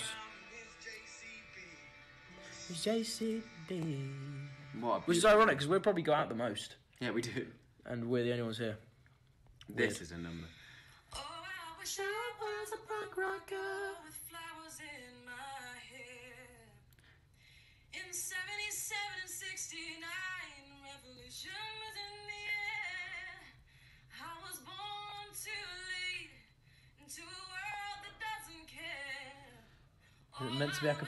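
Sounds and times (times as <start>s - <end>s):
woman singing a cappella: 0.0s - 4.7s, 11.0s - 17.0s, 17.9s - 31.0s.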